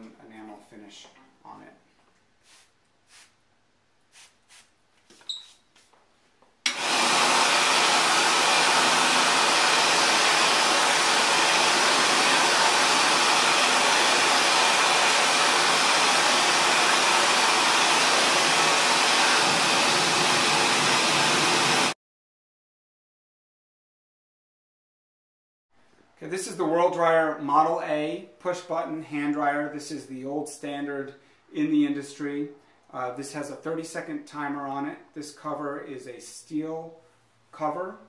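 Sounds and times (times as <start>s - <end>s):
spray bottle squirts: 4.1s - 5.9s
hand dryer blowing air: 6.7s - 22.0s.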